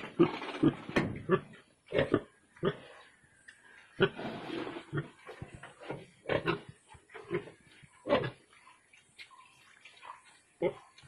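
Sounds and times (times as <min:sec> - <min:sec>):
pigs grunting: 0:00.0 - 0:03.0, 0:10.0 - 0:11.0.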